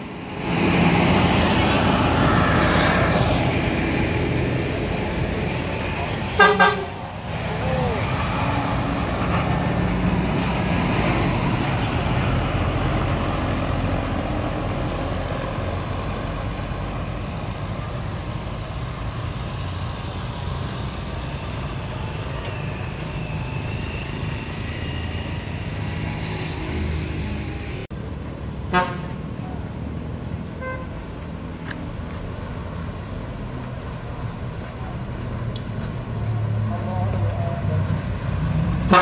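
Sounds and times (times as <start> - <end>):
coach engine passing: 0.0 - 28.4.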